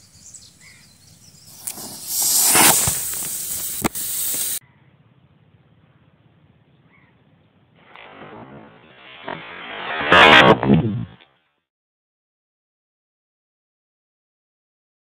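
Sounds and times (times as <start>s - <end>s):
rocket motor rushing hiss: 1.4s - 4.6s
sharp crack: 1.5s - 4.6s, 7.8s - 11.3s.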